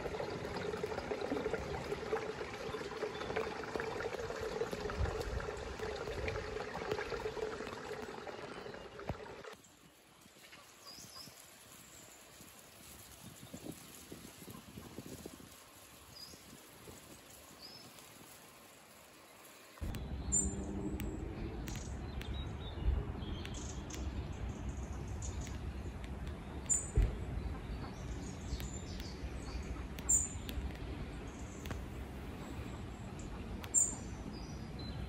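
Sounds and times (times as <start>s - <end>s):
birds chirping: 19.2s - 35.0s
steady low rumble: 19.8s - 35.0s.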